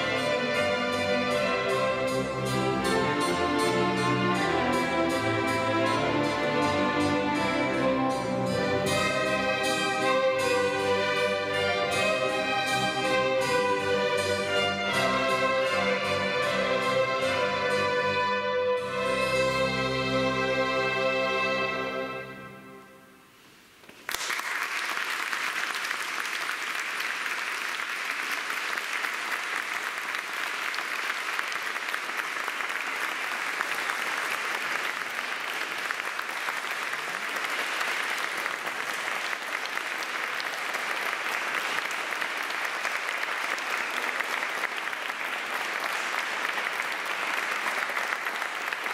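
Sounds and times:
string orchestra chord with cello: 0:00.0 - 0:22.9
audience applause: 0:23.9 - 0:48.9.

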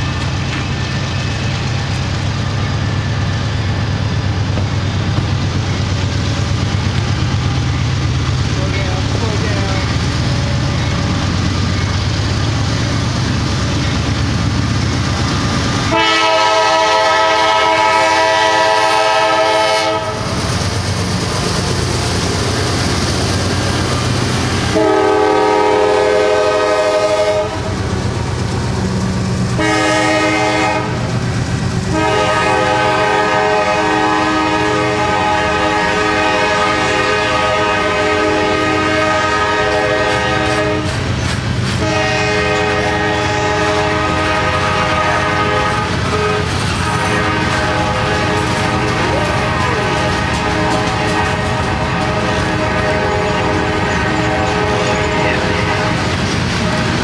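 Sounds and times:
train rumble and wheel clatter: 0:00.0 - 0:57.0
train horn blasts: 0:15.8 - 0:20.3, 0:24.7 - 0:27.7, 0:29.6 - 0:31.1, 0:31.9 - 0:41.0, 0:41.8 - 0:56.1.

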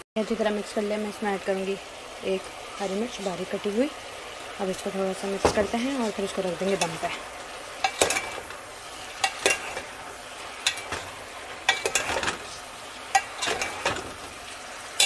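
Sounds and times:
vegetables sizzling: 0:00.0 - 0:15.0
spoon scraping metal pot: 0:07.8 - 0:14.1.

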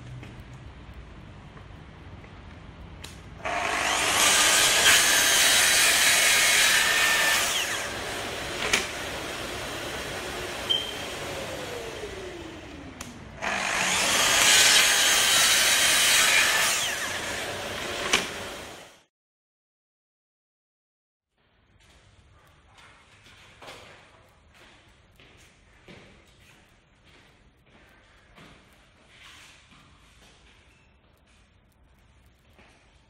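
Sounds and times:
circular saw cutting wood: 0:03.4 - 0:19.1.

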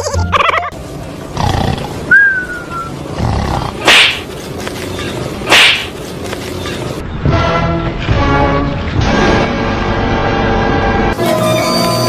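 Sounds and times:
falling squeal: 0:11.2 - 0:12.0.

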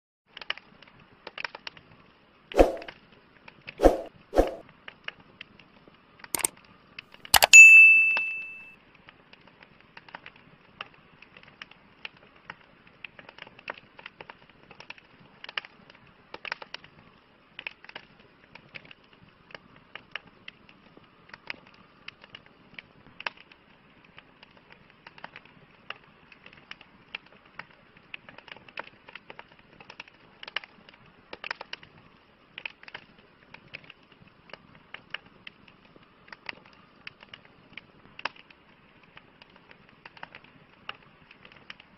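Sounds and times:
campfire crackling: 0:00.3 - 0:07.0, 0:09.0 - 0:41.9
soft fire hiss: 0:09.4 - 0:41.9.

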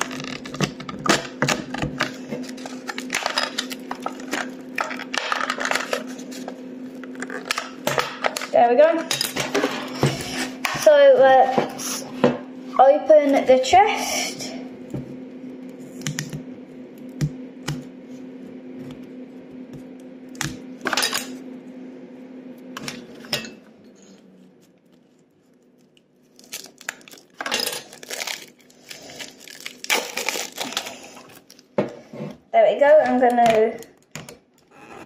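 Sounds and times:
plastic film crinkling and tearing: 0:00.0 - 0:07.6, 0:24.5 - 0:31.7
steady low hum: 0:00.0 - 0:35.0.

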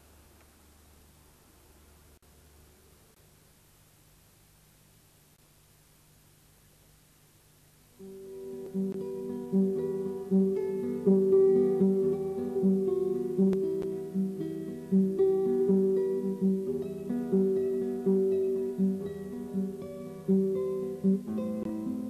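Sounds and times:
acoustic guitar picking notes: 0:08.0 - 0:22.0.

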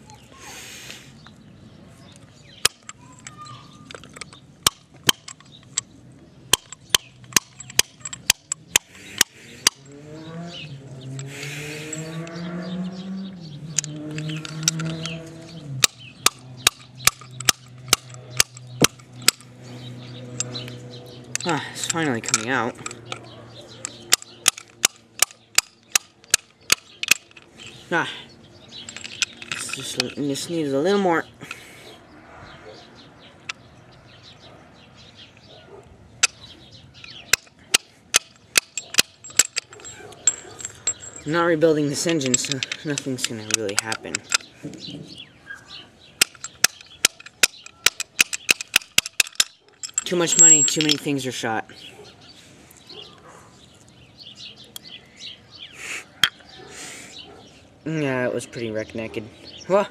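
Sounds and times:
metal tool clicks: 0:02.1 - 0:05.9, 0:06.5 - 0:09.9, 0:11.1 - 0:12.4, 0:13.6 - 0:19.6, 0:20.3 - 0:27.8, 0:28.7 - 0:30.7, 0:36.2 - 0:45.2, 0:46.2 - 0:51.4.

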